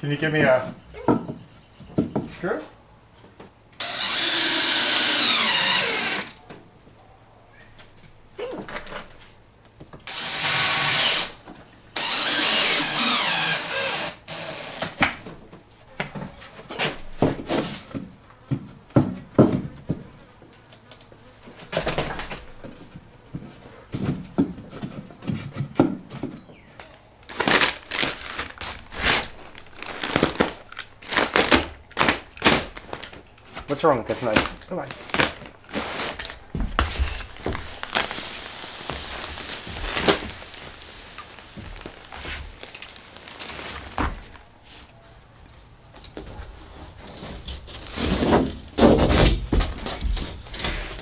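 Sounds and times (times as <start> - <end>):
power drill driving screws into wood: 3.8 - 6.4, 10.0 - 11.4, 12.0 - 15.1.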